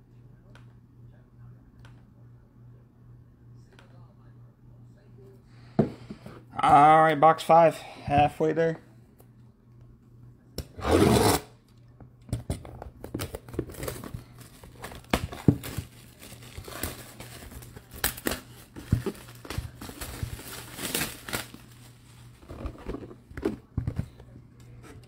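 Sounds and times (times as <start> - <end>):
plastic wrap tearing: 13.7 - 22.0
plastic wrap crackling: 14.3 - 22.1.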